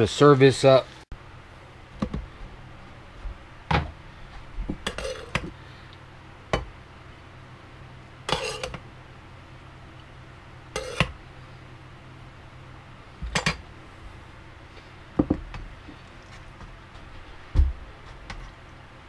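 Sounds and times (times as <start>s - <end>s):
spoon scraping rice: 8.3s - 8.8s.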